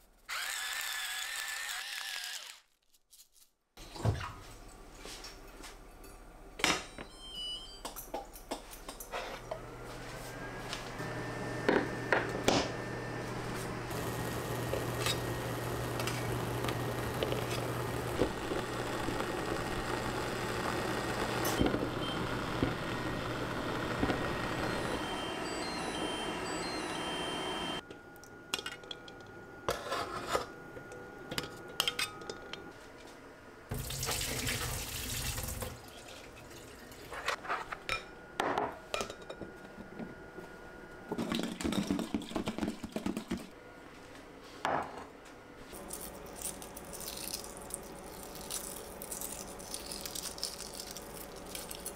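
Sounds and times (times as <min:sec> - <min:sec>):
steady low hum: 0:09.0 - 0:33.7
water running from tap: 0:33.7 - 0:37.1
water boiling in a pot: 0:33.7 - 0:37.2.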